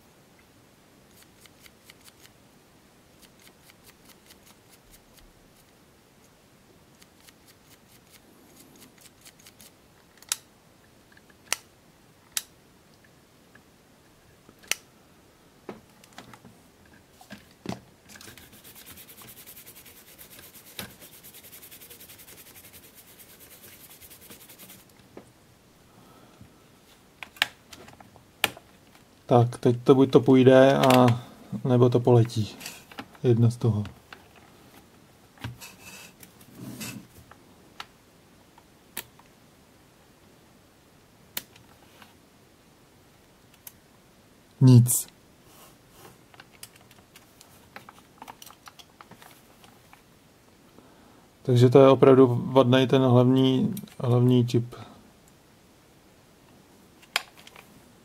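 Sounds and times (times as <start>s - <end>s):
steady hiss: 0.0s - 58.0s
cleaning pen scratching: 18.4s - 24.9s.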